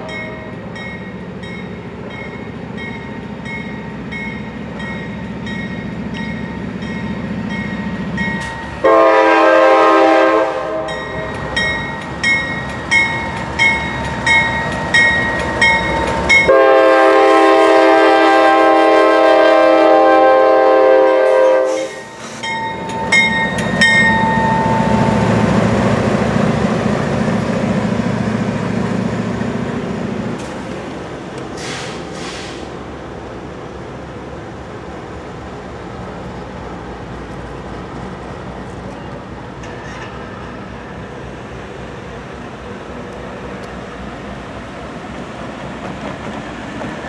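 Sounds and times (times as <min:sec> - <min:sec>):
diesel locomotive engine passing: 0:00.0 - 0:47.0
locomotive horn: 0:08.8 - 0:11.3, 0:16.4 - 0:22.2.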